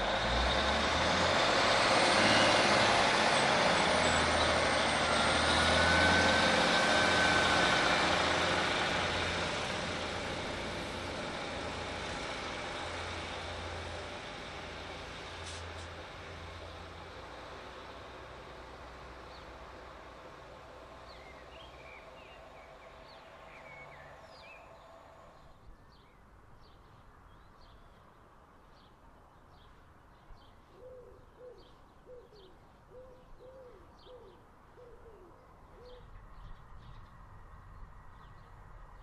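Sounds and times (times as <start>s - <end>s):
distant diesel train hum: 0.0s - 25.7s
small birds chirping: 21.0s - 39.0s
dove cooing: 30.8s - 36.1s.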